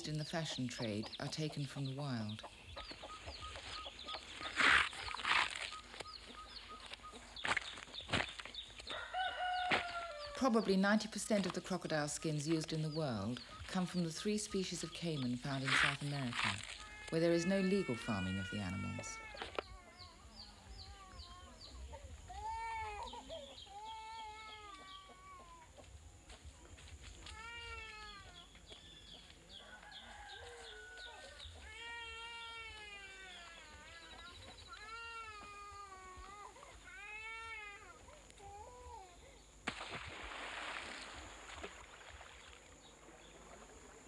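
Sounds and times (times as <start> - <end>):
bird chirping: 0.0 - 8.8.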